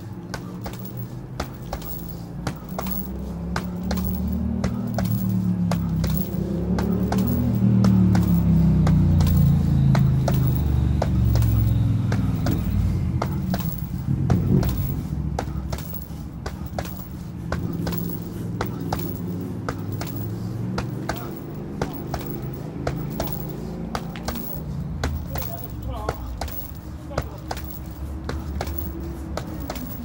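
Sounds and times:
gloves thudding on punching bag: 0:00.0 - 0:30.0.

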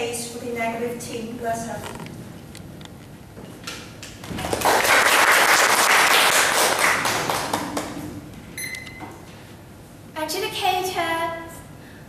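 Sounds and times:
audience clapping: 0:04.0 - 0:08.2.

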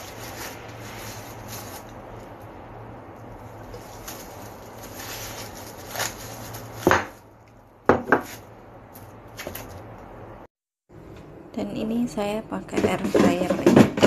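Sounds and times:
plastic bag crinkling: 0:00.0 - 0:02.6, 0:03.2 - 0:07.4.

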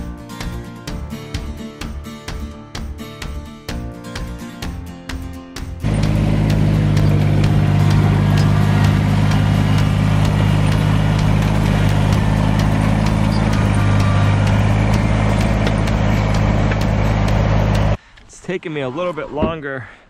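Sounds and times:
tractor diesel engine running: 0:05.8 - 0:18.0.

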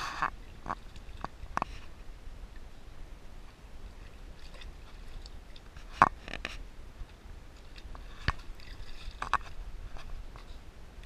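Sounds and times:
water splashing: 0:03.6 - 0:10.6.

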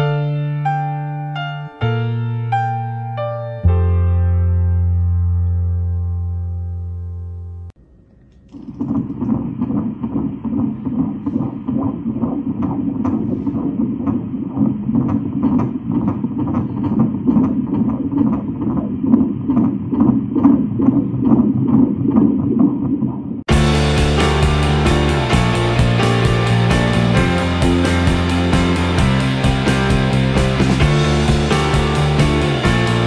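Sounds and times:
fetal heartbeat whooshing pulse: 0:08.5 - 0:33.0.

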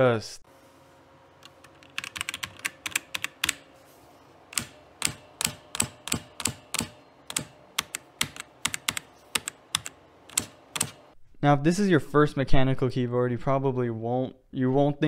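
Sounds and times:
mechanical keyboard typing: 0:01.4 - 0:03.7, 0:04.5 - 0:11.0.

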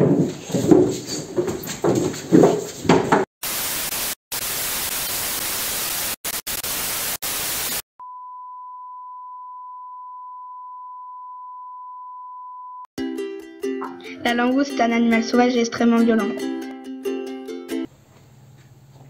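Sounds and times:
television static hiss: 0:03.4 - 0:07.8.

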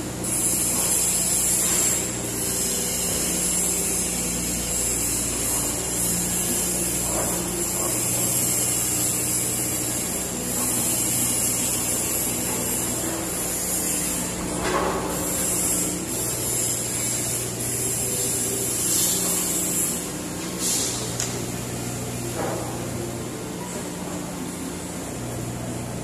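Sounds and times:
hydraulic hiss: 0:00.0 - 0:23.4
excavator diesel engine: 0:00.0 - 0:26.0.

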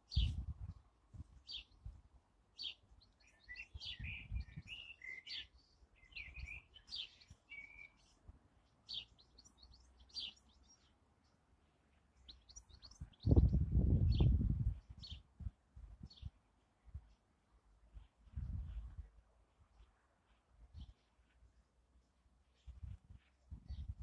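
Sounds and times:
bird warbling song: 0:00.0 - 0:00.5, 0:01.4 - 0:01.9, 0:02.5 - 0:15.4
small birds chirping: 0:00.0 - 0:24.0
low rumbles on microphone: 0:13.0 - 0:16.3, 0:18.3 - 0:19.2.

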